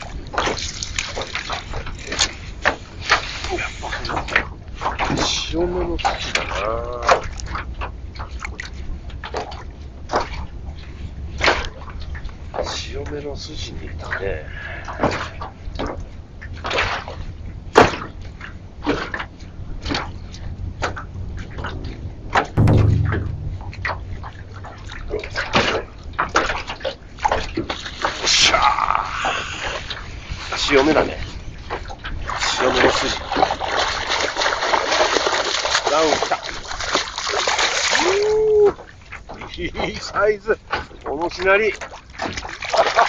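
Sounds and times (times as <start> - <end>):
waves slapping against boat hull: 0.0 - 28.5, 29.2 - 43.0
heavy low thump: 22.6 - 24.6
steady low rumble: 22.6 - 24.9.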